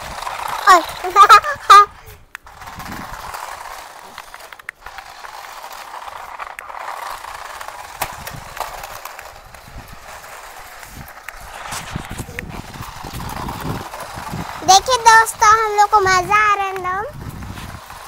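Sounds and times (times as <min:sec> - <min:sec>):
toy car motors whirring: 0:00.0 - 0:18.0.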